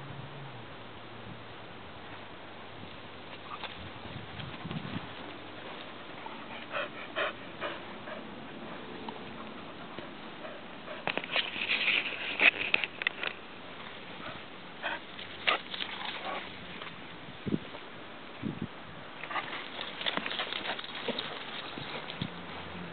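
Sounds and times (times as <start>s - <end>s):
dogs sniffing in grass: 4.4s - 12.6s.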